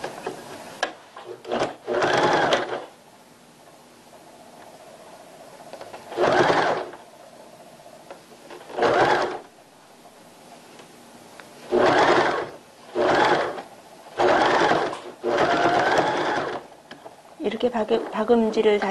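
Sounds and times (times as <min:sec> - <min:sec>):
sewing machine stitching: 0:01.2 - 0:02.9, 0:06.0 - 0:07.0, 0:08.5 - 0:09.5, 0:11.7 - 0:16.7.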